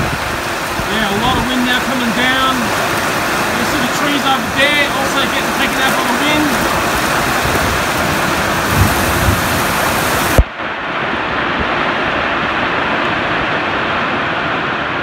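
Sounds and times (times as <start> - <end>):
low bumps: 0.0 - 10.5
gusting wind: 0.0 - 15.0
heavy rain: 0.0 - 15.0.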